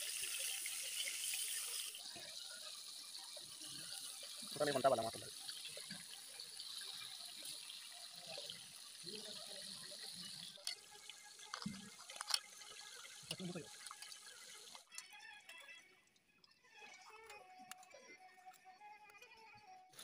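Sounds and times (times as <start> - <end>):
fish frying in hot oil: 0.0 - 14.9.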